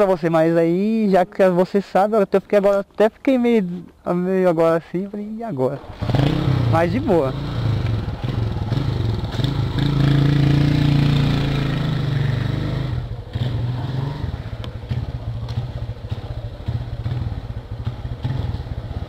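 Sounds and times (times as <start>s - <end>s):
motorcycle engine revving: 5.8s - 19.0s.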